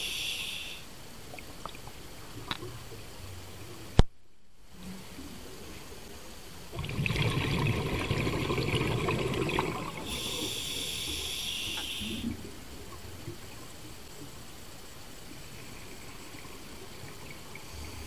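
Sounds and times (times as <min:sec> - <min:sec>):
hissing inhalation through regulator: 0:00.0 - 0:00.9, 0:09.6 - 0:12.4
exhaled bubbles rushing underwater: 0:06.7 - 0:10.6.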